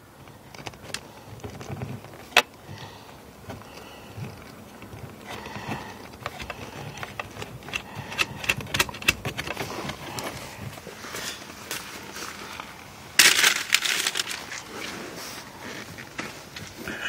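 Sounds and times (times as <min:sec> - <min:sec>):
metal and plastic clicks: 0:04.3 - 0:10.3.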